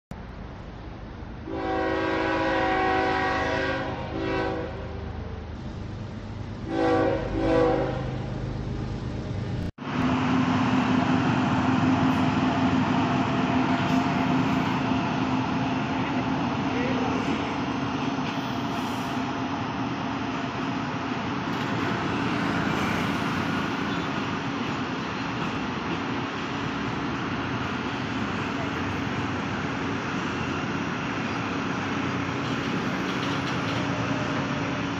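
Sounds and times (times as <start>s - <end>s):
freight train rumbling past: 0.2s - 34.9s
locomotive hum: 0.2s - 34.9s
train horn: 1.4s - 5.2s, 6.6s - 8.2s.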